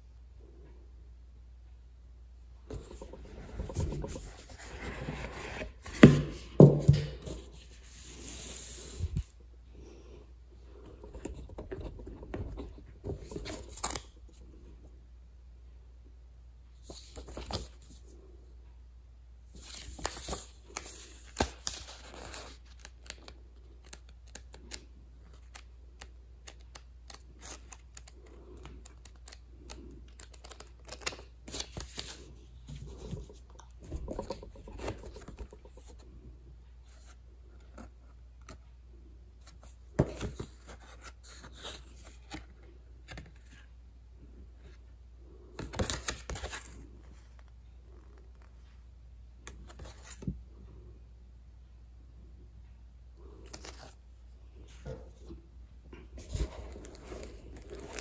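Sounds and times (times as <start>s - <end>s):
packing material rustling and tearing: 56.6s - 58.0s.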